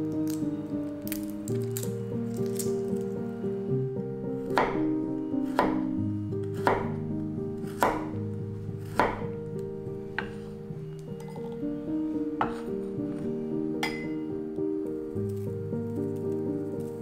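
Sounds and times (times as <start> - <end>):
soft background music: 0.0 - 17.0
knife chopping on a cutting board: 4.6 - 4.8, 6.5 - 7.0, 7.6 - 8.2, 8.8 - 9.4, 10.2 - 10.5.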